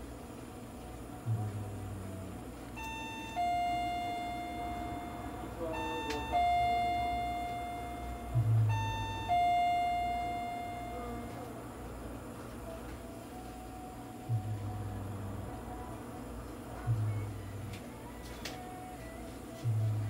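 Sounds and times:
steady background noise: 0.0s - 20.0s
electronic two-tone chime: 2.8s - 11.4s.

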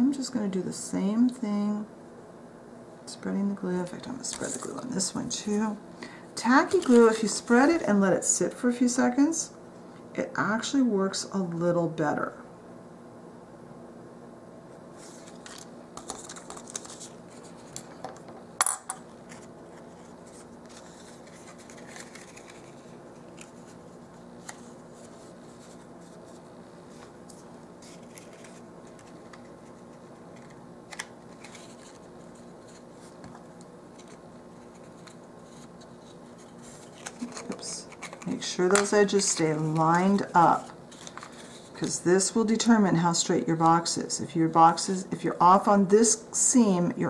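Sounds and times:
low room hum: 0.0s - 47.0s
cardstock scraping: 19.2s - 33.3s.

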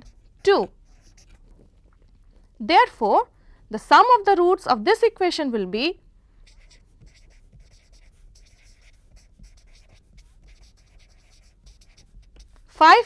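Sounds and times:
felt-tip marker writing on paper: 0.0s - 1.9s, 6.4s - 12.8s.

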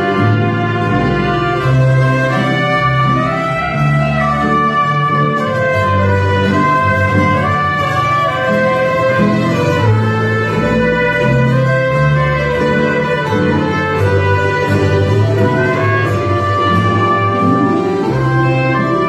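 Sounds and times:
accordion: 0.0s - 19.0s
plucked double bass: 0.0s - 19.0s
tamburicas strumming: 0.0s - 19.0s.

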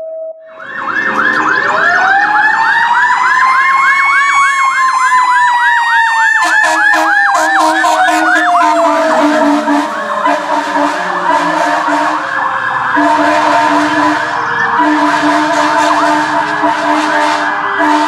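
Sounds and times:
siren fast electronic yelp: 0.0s - 18.0s
siren slow rising and falling tone: 0.0s - 18.0s
short horn blasts: 6.4s - 12.2s, 14.8s - 18.0s.

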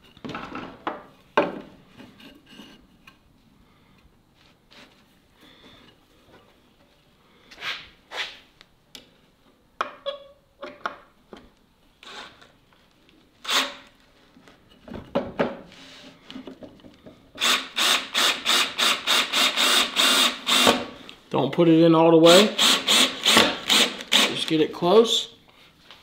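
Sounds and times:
power drill driving screw: 13.4s - 13.9s, 17.4s - 20.9s, 22.3s - 24.4s
wooden boards knocking and scraping: 14.8s - 15.6s.

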